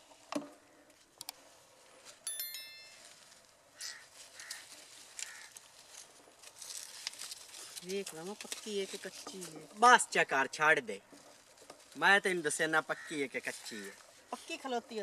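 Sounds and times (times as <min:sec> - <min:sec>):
short bell-like ring: 0:02.3 - 0:03.3.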